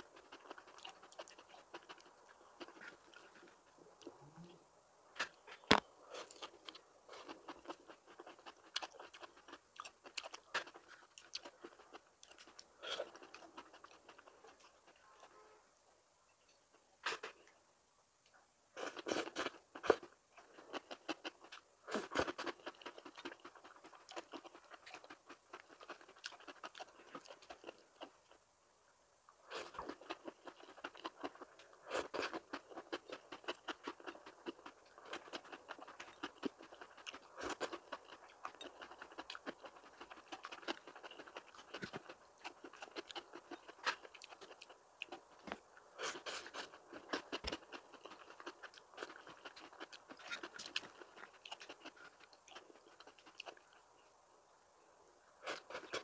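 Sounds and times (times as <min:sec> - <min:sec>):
person crunching food: 0:00.0 - 0:03.6, 0:05.2 - 0:15.0, 0:18.8 - 0:28.3, 0:29.4 - 0:53.9.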